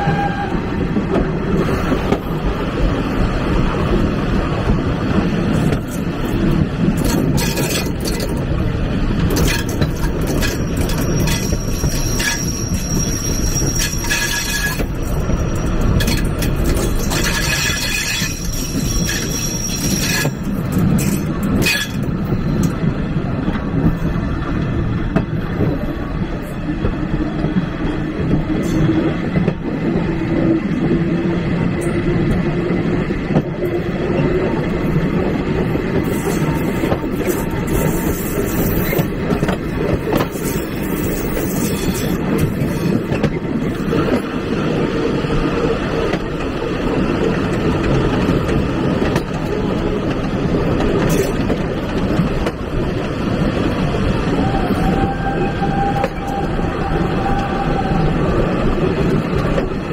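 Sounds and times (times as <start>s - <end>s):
railway wheels rumbling: 0.0s - 59.9s
high wheel squeal: 10.4s - 20.4s.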